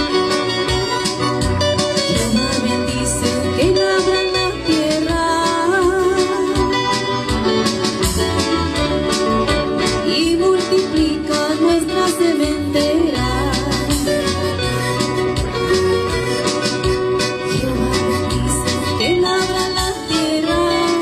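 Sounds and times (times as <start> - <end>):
strummed guitars: 0.0 - 21.0
woman singing a hymn: 2.1 - 6.8, 10.0 - 14.1, 17.5 - 21.0.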